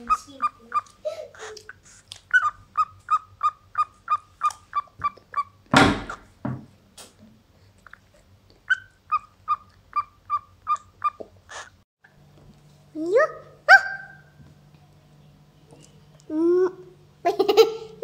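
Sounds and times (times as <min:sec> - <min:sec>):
cockatiel chirping: 0:00.0 - 0:01.6, 0:02.3 - 0:05.6, 0:08.7 - 0:11.7
loud thump: 0:05.7 - 0:06.7.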